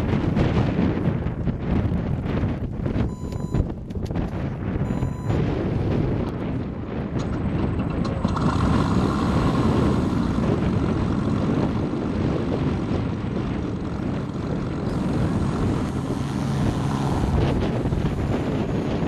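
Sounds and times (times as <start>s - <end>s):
wind buffeting microphone: 0.0s - 19.0s
model plane engine sound: 7.6s - 19.0s.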